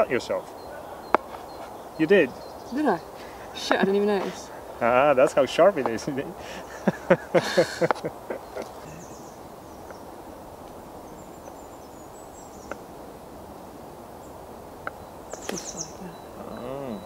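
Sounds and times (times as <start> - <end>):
faint high bird chirps: 0.0 - 5.7, 8.1 - 10.2, 14.2 - 17.0
woodland background noise: 0.0 - 17.0.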